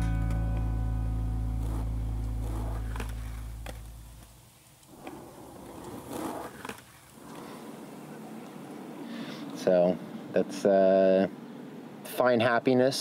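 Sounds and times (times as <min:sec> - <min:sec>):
held guitar chord: 0:00.0 - 0:04.0
skateboard wheels rolling: 0:00.2 - 0:10.2
skateboards clacking on concrete: 0:01.6 - 0:08.7.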